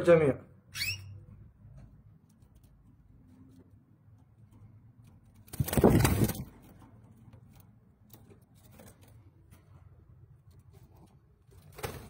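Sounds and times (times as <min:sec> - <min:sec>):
loud rustling bump: 0:05.5 - 0:06.8.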